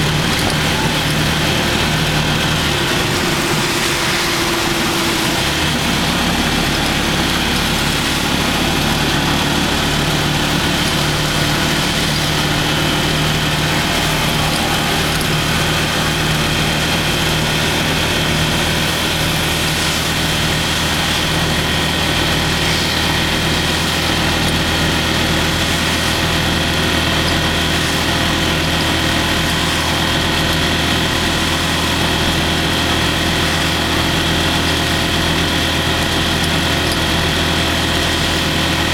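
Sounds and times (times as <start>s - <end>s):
rain on wet road hiss: 0.0s - 38.9s
vehicle engine droning: 0.0s - 38.9s.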